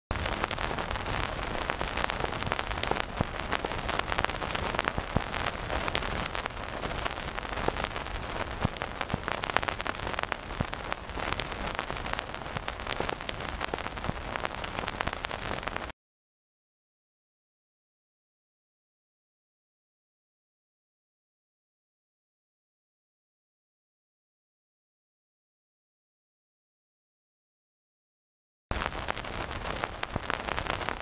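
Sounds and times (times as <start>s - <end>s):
vinyl crackle and hiss: 0.1s - 15.9s, 28.7s - 31.0s.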